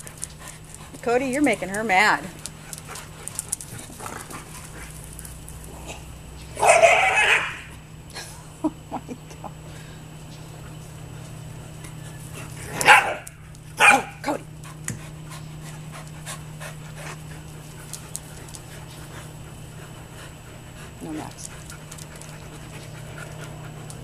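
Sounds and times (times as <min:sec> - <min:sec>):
dog barking: 0:06.6 - 0:07.7, 0:12.7 - 0:14.2.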